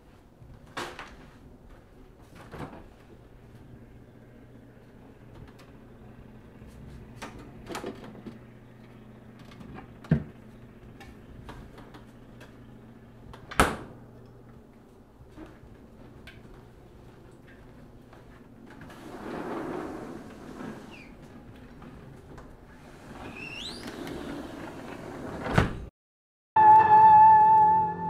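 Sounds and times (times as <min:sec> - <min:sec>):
refrigerator hum: 0:00.1 - 0:25.9
fridge door shutting thud: 0:13.3 - 0:14.0, 0:25.4 - 0:25.9
sliding door opening: 0:18.7 - 0:25.9.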